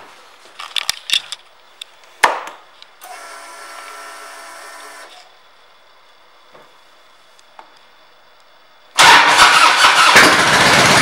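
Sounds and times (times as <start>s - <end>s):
steady electric whine: 1.3s - 9.0s.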